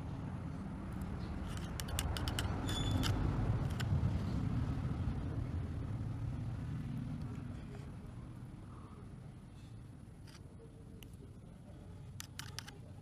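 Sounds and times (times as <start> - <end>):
road traffic rumble: 0.0 - 13.0
small sharp clicks: 1.0 - 3.9, 12.2 - 12.8.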